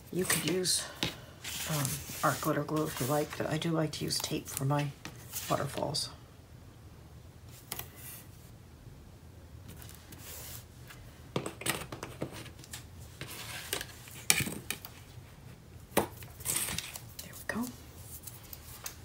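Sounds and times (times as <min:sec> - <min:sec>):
paper and tape rustling: 0:00.1 - 0:05.8, 0:16.2 - 0:19.0.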